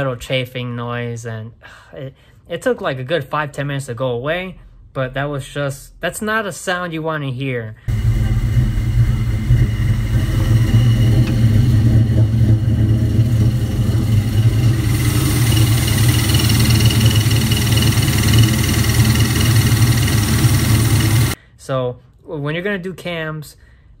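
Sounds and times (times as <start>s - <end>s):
car engine running: 7.9s - 21.4s
metal chafing noise: 7.9s - 21.4s.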